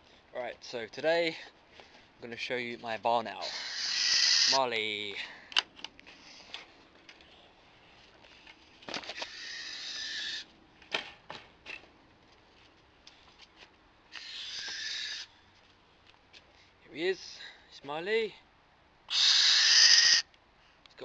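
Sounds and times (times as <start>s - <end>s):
barn owl hissing calls: 3.4s - 4.6s, 6.2s - 6.5s, 9.2s - 10.5s, 14.1s - 15.4s, 19.1s - 20.3s.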